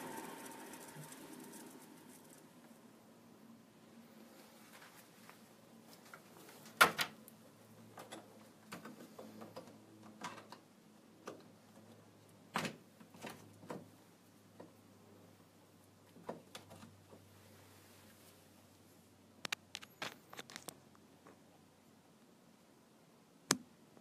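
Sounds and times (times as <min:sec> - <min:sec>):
gas torch burning hum: 0:00.0 - 0:02.9.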